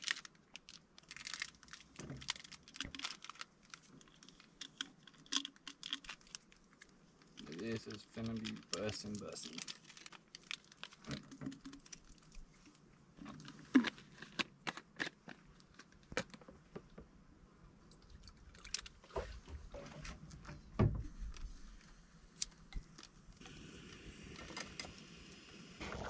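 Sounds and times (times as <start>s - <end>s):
paper packets crinkling: 0.0s - 12.4s.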